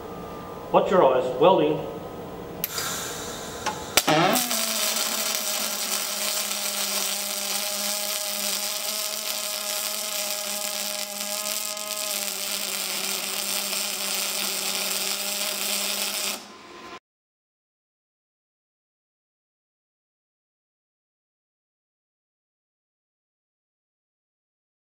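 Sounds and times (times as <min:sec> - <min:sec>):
welding arc buzzing: 0:02.6 - 0:17.0
welding arc striking click: 0:03.6 - 0:16.5.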